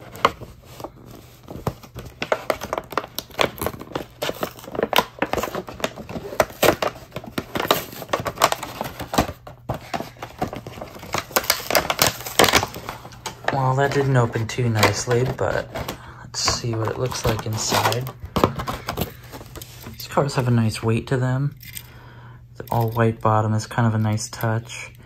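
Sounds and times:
cardboard tearing: 0.0s - 19.9s
plastic blister pack crackling: 0.0s - 20.5s.

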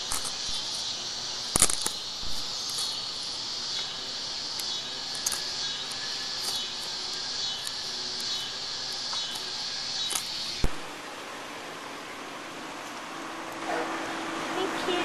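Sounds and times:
sharp clicks: 0.0s - 10.9s
chorus of cicadas: 0.0s - 15.0s.

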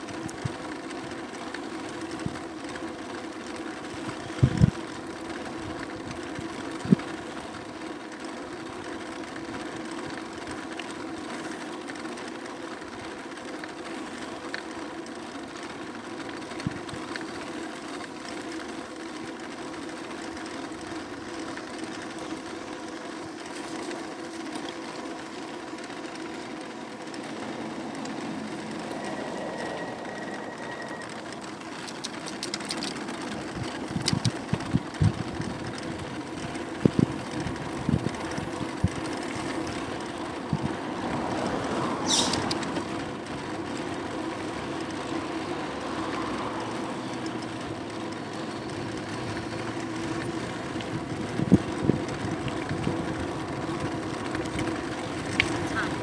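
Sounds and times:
electric motor whine: 21.9s - 39.7s.

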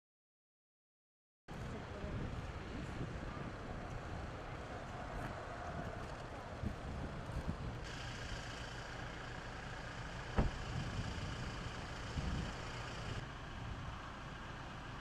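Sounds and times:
soft thump: 10.4s - 10.6s.

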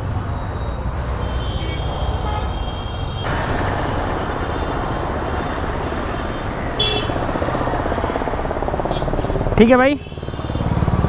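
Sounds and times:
passing road traffic: 0.0s - 11.0s.

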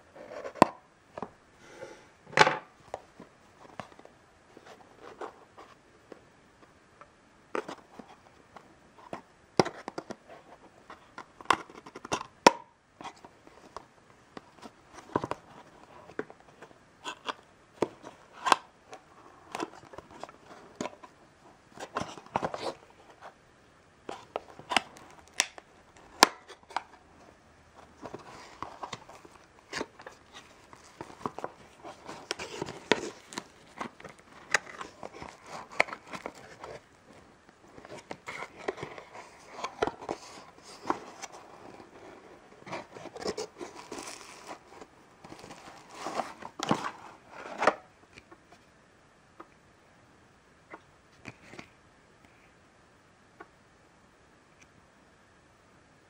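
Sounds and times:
plastic wrap crinkling: 27.8s - 47.4s.

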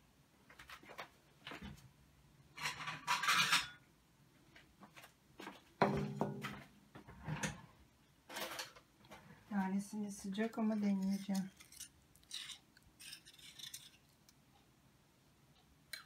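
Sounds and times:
glass dishes clinking: 2.6s - 3.8s
rustling scrape: 10.8s - 14.0s.

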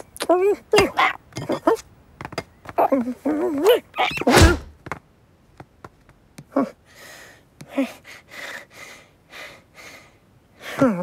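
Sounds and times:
grunting squeaks: 0.0s - 1.9s, 2.8s - 4.7s.

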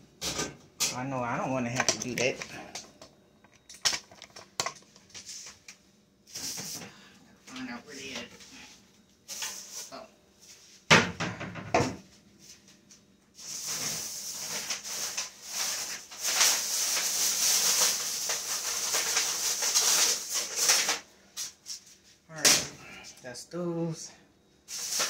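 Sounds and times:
foil crinkling and rustling: 13.4s - 21.6s, 24.7s - 25.0s.

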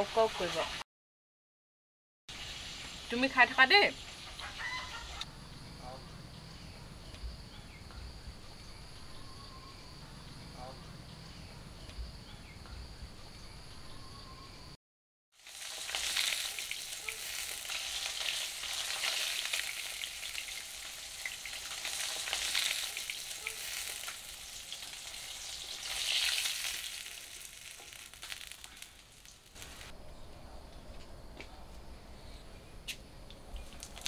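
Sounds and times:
fish sizzling in hot oil: 0.0s - 0.8s, 2.3s - 5.2s, 15.4s - 29.9s, 33.8s - 34.0s.

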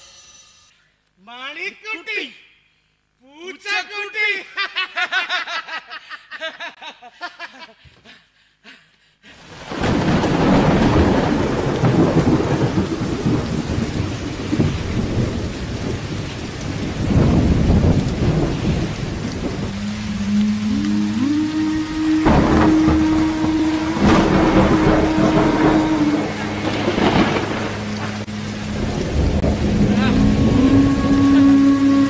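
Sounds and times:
heavy rain: 9.3s - 32.0s
rolling thunder: 9.6s - 32.0s
steady low musical note: 19.6s - 32.0s.

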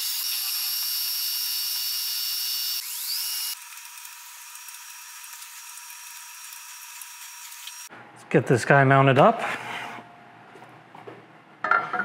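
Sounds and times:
milling machine drill whine: 0.0s - 7.9s.

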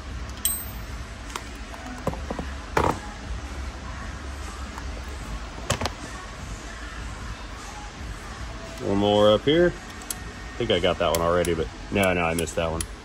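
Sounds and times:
low steady hum: 0.0s - 13.0s
metal tools clicking and clinking: 0.3s - 0.9s.

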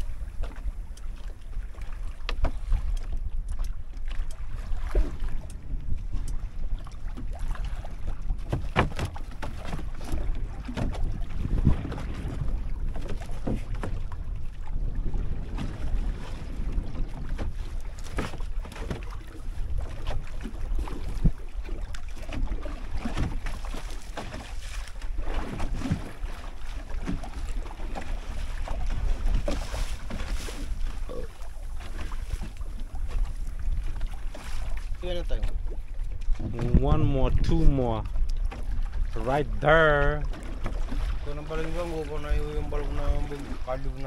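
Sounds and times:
water sloshing: 0.0s - 44.0s
wind buffeting microphone: 0.0s - 44.0s
splashes: 15.1s - 35.7s, 40.0s - 44.0s.

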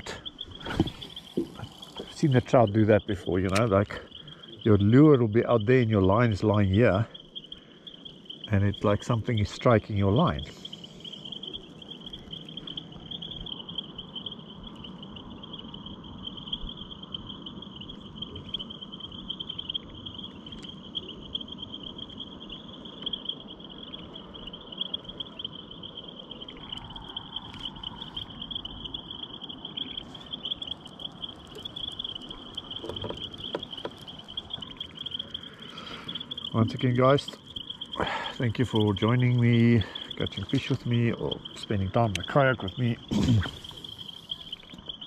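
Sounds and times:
faint clicks: 0.0s - 4.7s, 29.7s - 45.0s
insects chirring: 0.0s - 45.0s.

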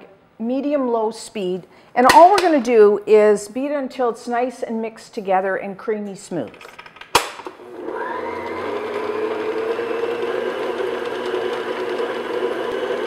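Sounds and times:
stand mixer motor running: 7.6s - 13.0s
paddle beating butter in bowl: 8.4s - 13.0s.

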